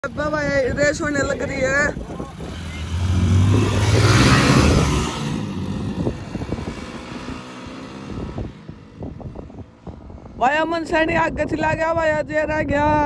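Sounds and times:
motorcycles accelerating hard: 0.0s - 10.5s.

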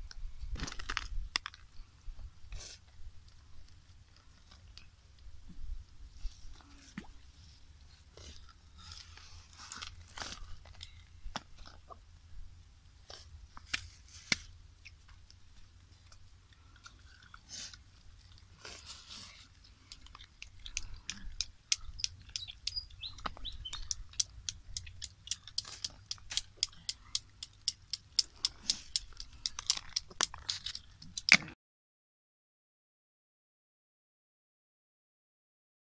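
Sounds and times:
chewing and crunching: 2.6s - 5.0s, 6.3s - 12.2s, 13.0s - 31.6s
snail shells clicking: 19.8s - 31.4s.

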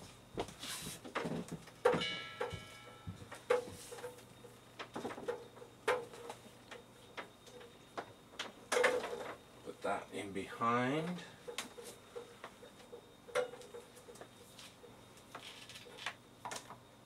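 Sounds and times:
metallic ring: 1.9s - 4.2s.

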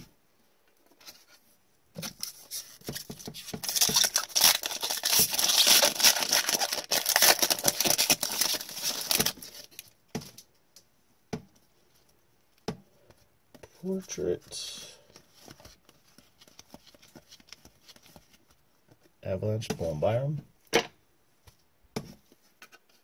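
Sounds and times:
foil wrapper tearing and crinkling: 2.4s - 9.8s.

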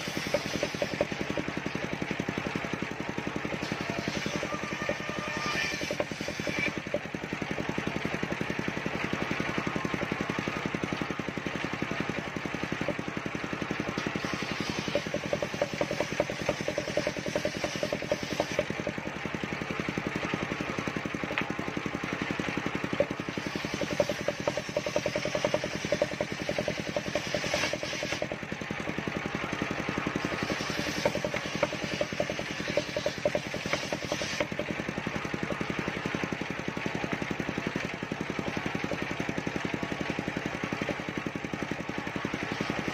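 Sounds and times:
circular saw ripping wood: 0.0s - 2.0s, 3.4s - 7.1s, 13.9s - 19.0s, 22.6s - 28.6s, 29.6s - 35.0s
engine running in even pulses: 0.0s - 42.9s.

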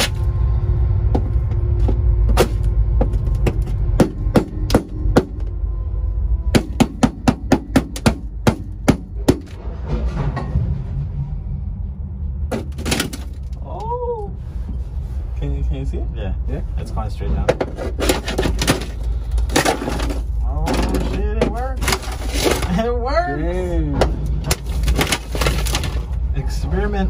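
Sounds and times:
low rumble: 0.0s - 17.8s, 18.4s - 27.0s
knocks and cracks on sheet metal: 6.6s - 10.5s.

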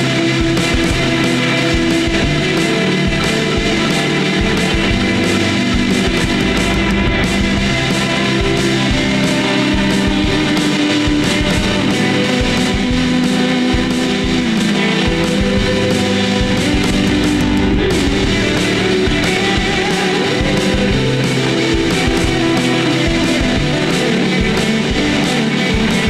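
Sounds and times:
distorted electric guitars: 0.0s - 26.0s
drum beat: 0.0s - 26.0s.

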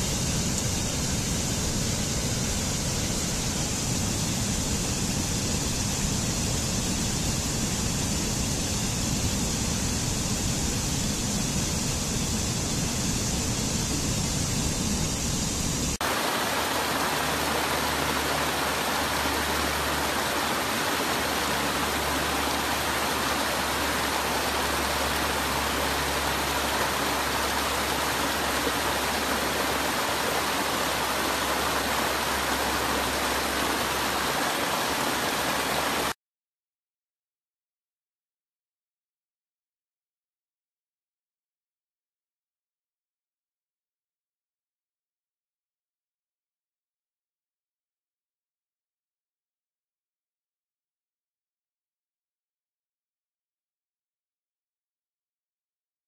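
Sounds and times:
water cascading over rocks: 16.0s - 36.2s.

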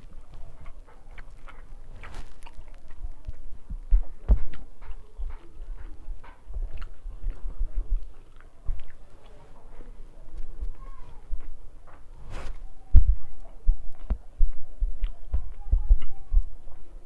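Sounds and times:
wet squishes of hand mixing food: 0.0s - 12.1s
dull low thumps: 1.6s - 8.9s, 10.4s - 16.6s.

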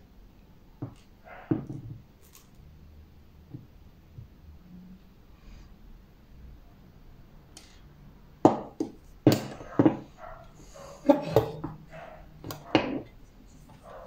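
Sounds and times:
dog barking: 1.2s - 1.7s, 9.6s - 13.0s, 13.8s - 14.0s.

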